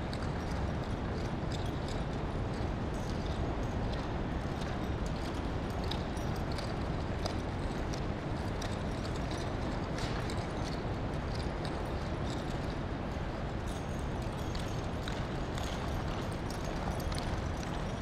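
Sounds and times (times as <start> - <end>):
horse hoofbeats on dirt: 14.0 - 18.0.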